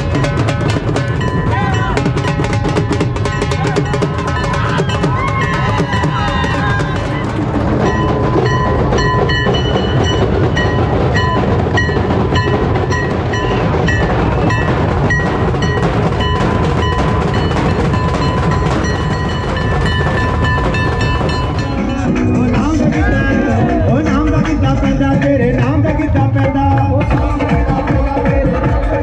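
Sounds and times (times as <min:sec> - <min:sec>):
loud drumming: 0:00.0 - 0:29.0
high held tone: 0:01.0 - 0:24.2.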